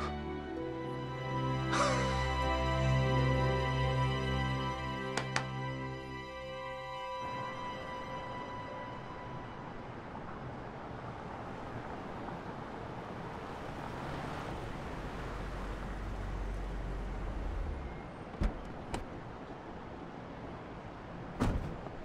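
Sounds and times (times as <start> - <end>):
city traffic noise: 0.0 - 22.0
car engine rumble: 9.9 - 22.0
car door thud: 21.4 - 21.9.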